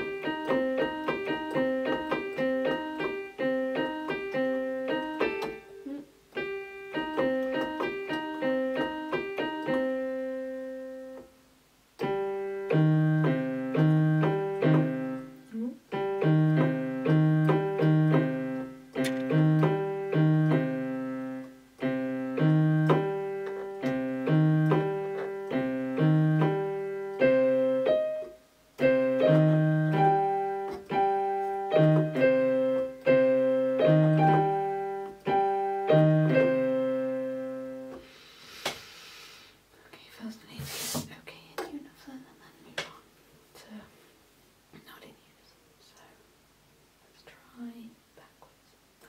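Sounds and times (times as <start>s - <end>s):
keyboard broken chords: 0.0s - 38.1s.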